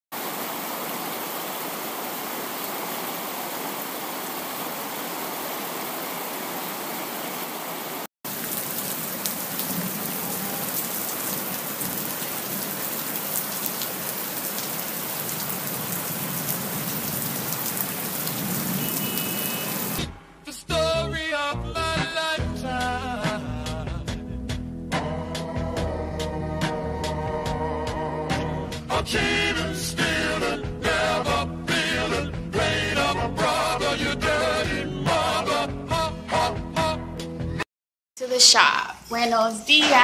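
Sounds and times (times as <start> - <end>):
heavy rain on car windshield: 8.3 - 20.0.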